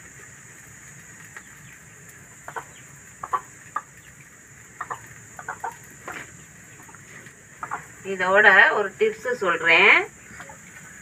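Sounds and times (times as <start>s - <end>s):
chicken clucking: 1.3s - 8.0s.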